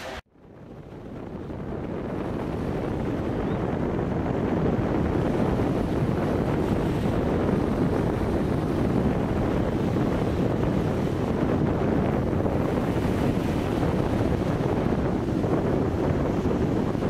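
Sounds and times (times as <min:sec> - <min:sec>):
wind on microphone: 0:00.0 - 0:17.0
small waves washing on shore: 0:04.0 - 0:17.0.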